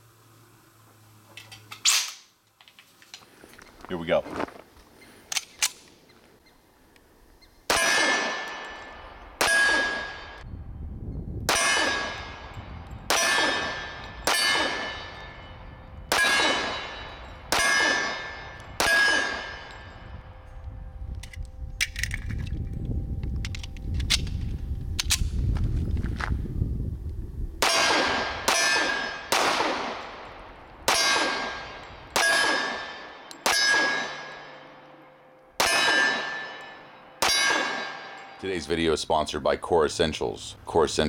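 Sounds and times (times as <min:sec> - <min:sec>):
metallic clicks of gun handling: 0:01.3 - 0:03.8, 0:05.2 - 0:06.1, 0:21.1 - 0:25.4
pistol shots: 0:07.7 - 0:10.4, 0:11.5 - 0:15.4, 0:16.1 - 0:19.8, 0:27.6 - 0:34.6, 0:35.6 - 0:38.2
ringing clang of steel target: 0:07.7 - 0:10.5, 0:11.5 - 0:20.7, 0:27.6 - 0:29.3, 0:30.1 - 0:38.5.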